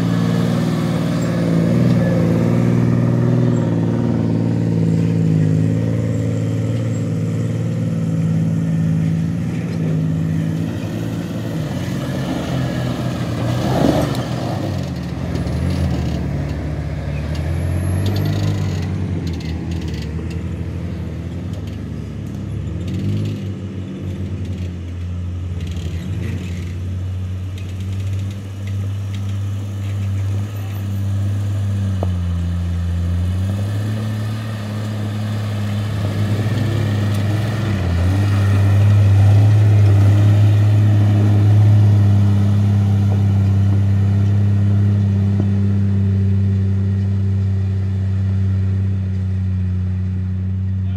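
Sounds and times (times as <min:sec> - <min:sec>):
engine pulling uphill: 0:00.0 - 0:50.9.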